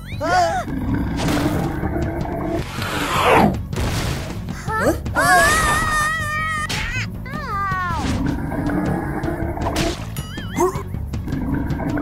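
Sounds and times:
background music: 0.0 - 12.0
cartoon character yelling: 5.2 - 8.1.

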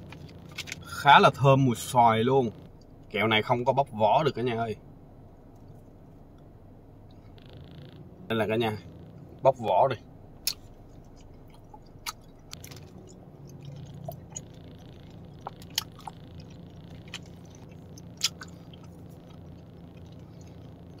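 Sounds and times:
steady low hum: 0.0 - 21.0
wet mouth clicks and smacks: 10.4 - 14.5, 15.4 - 19.3.

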